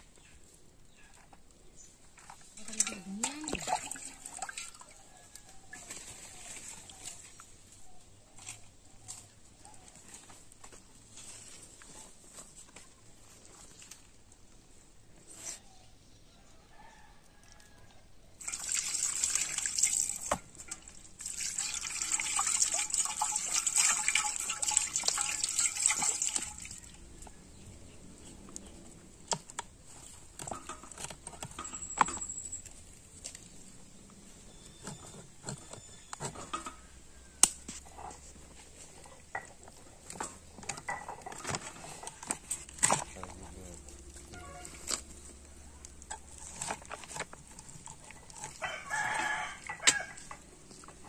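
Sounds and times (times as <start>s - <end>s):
water pouring and splashing: 2.1s - 7.5s, 18.4s - 27.2s, 45.8s - 51.0s.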